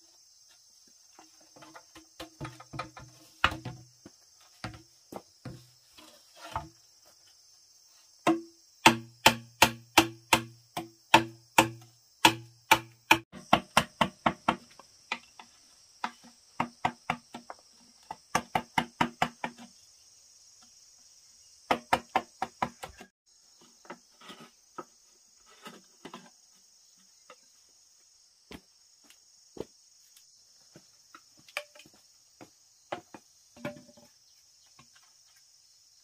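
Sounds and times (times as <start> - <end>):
mallet knocking on knife blade: 8.3 - 13.2.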